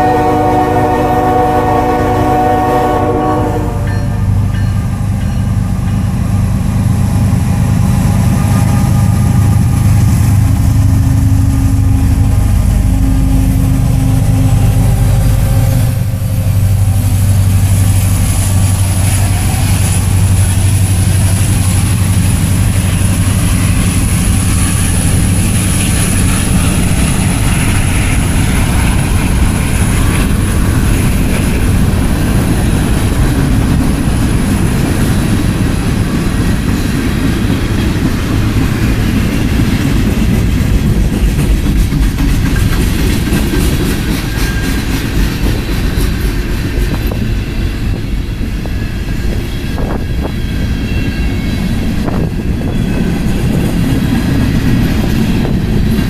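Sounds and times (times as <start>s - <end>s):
locomotive horn: 0.0s - 4.4s
diesel locomotives rumbling past: 0.0s - 56.0s
freight cars rolling on rails: 0.0s - 56.0s.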